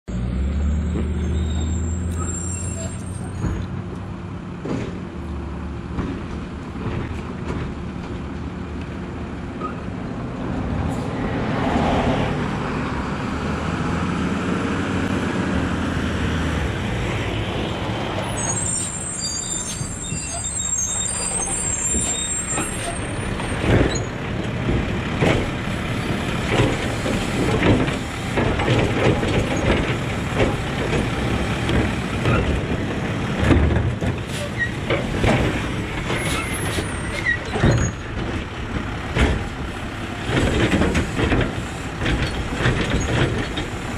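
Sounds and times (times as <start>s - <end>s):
air brakes hissing and squealing: 0.4s - 3.7s, 9.6s - 9.9s, 10.9s - 11.3s, 18.2s - 24.2s, 34.2s - 38.2s, 40.9s - 43.7s
diesel truck engine running: 22.2s - 43.9s.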